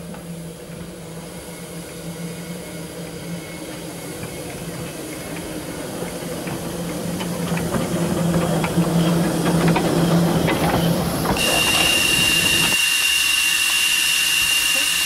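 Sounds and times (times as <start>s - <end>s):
steam locomotive running slowly: 0.0s - 15.0s
wheels clicking and knocking: 4.2s - 12.8s
steam hiss with whistle tone: 11.4s - 15.0s.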